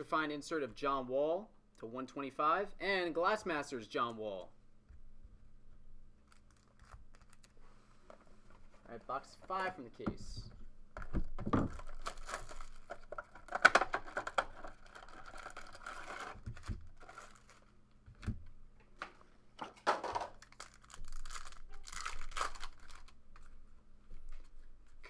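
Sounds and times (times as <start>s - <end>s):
plastic shrink-wrap tearing and crinkling: 6.3s - 7.6s, 11.7s - 17.8s, 20.4s - 23.2s
card packs rustling: 6.3s - 9.8s, 11.0s - 17.8s, 19.7s - 23.6s.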